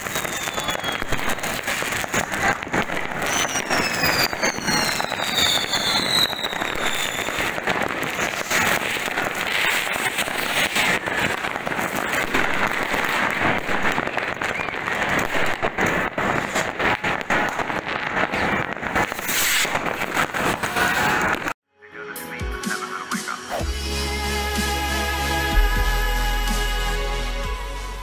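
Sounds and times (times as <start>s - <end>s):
firework whistle falling in pitch: 0.0s - 1.3s, 3.1s - 7.6s
fireworks banging and crackling: 0.0s - 21.6s.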